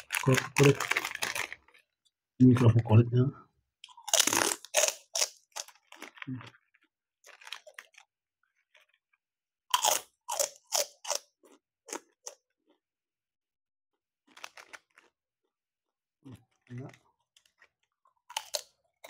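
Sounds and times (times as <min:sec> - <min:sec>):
crunchy chewing of crackers: 0:00.0 - 0:02.0, 0:03.8 - 0:12.9, 0:14.2 - 0:15.6, 0:16.3 - 0:19.0.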